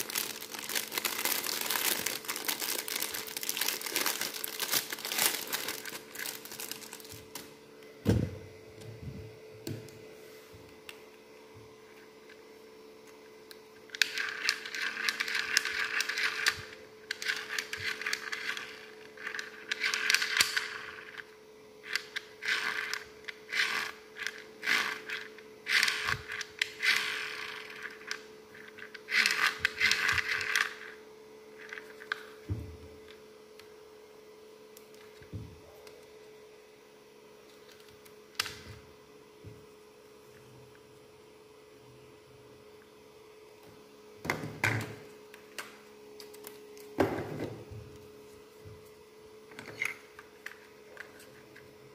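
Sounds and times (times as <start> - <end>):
plastic rattling: 0.0 - 7.4
faint steady hum: 0.0 - 51.9
mini fan whirring: 0.0 - 51.9.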